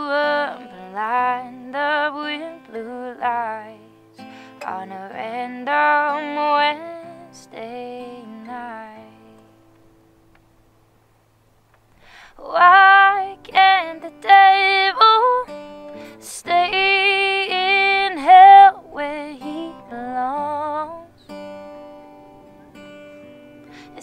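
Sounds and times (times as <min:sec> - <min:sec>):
woman singing: 0:00.0 - 0:09.5, 0:12.3 - 0:21.2, 0:23.8 - 0:24.0
acoustic guitar: 0:00.0 - 0:24.0.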